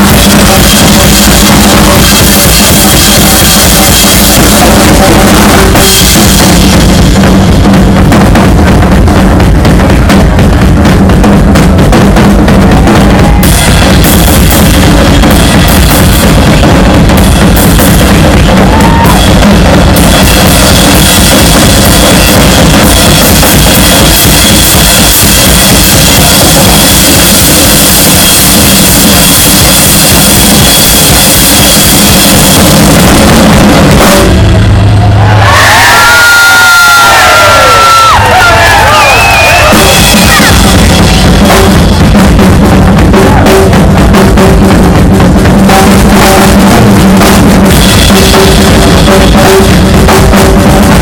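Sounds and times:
drum solo: 0.0s - 51.0s.

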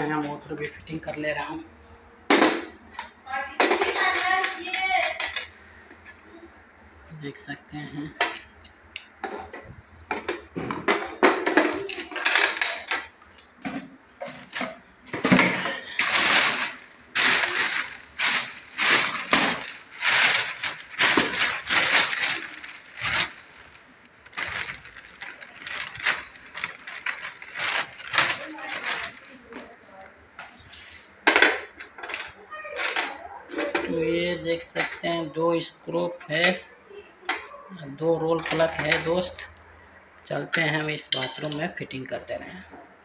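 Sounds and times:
plastic bags rustling: 3.6s - 6.4s, 9.3s - 36.6s, 37.8s - 39.6s.

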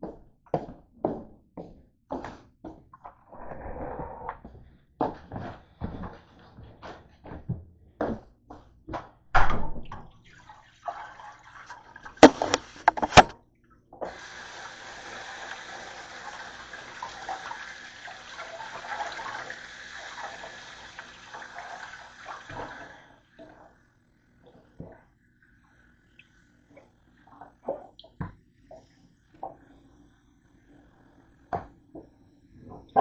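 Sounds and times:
faucet water splashing in sink: 9.9s - 13.0s, 14.0s - 23.0s.

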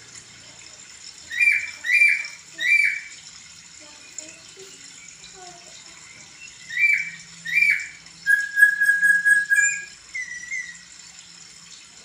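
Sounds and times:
bird singing whistled phrases: 1.3s - 3.1s, 6.4s - 10.8s.

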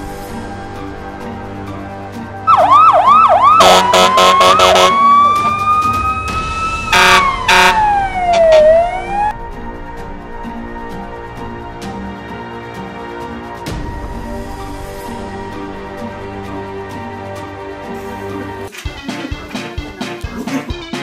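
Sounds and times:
background music: 0.0s - 21.0s
siren-like sound effect: 2.5s - 9.4s.

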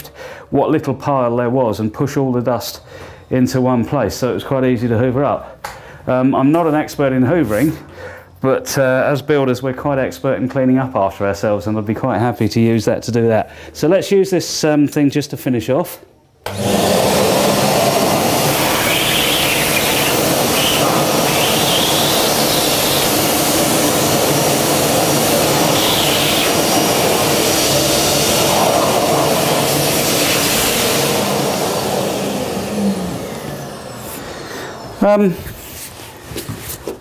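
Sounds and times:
wet and dry vacuum cleaner running: 16.5s - 35.9s.

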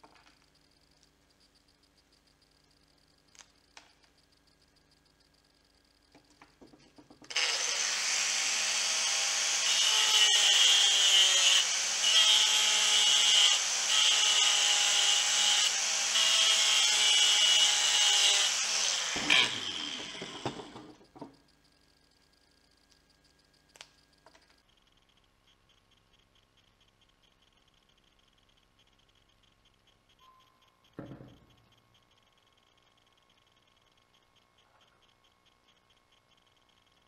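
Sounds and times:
angle grinder running: 7.3s - 21.0s.

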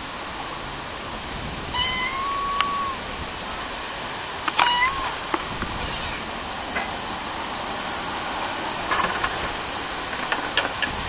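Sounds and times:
steady background hiss: 0.0s - 11.0s
faint clicks and knocks: 8.9s - 11.0s.

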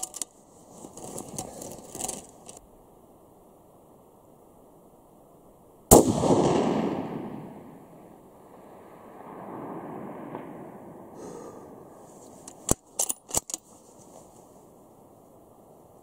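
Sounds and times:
rifle shot echoing: 5.9s - 11.5s.

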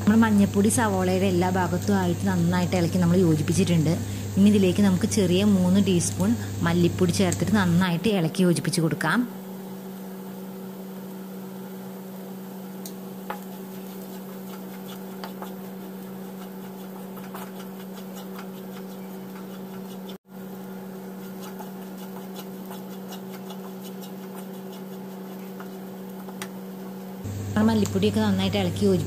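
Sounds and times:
spatula stirring in a pan: 12.8s - 27.1s.

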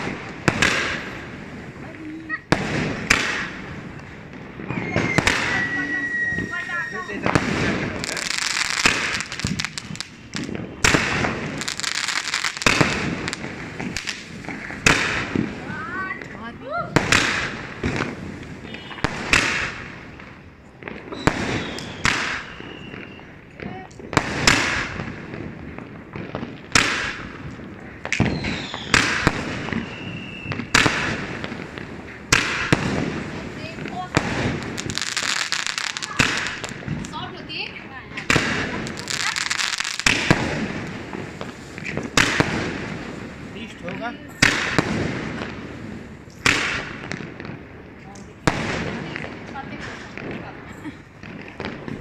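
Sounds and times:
fireworks bangs: 0.0s - 52.0s
fireworks rapid crackling: 0.0s - 52.0s
firework whistle: 4.6s - 8.1s, 18.6s - 19.5s, 21.1s - 23.4s, 28.2s - 31.1s.

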